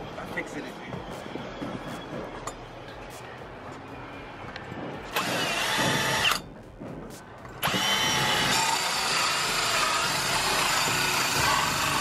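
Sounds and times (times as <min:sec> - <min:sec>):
power drill running with high whine: 0:07.6 - 0:12.0.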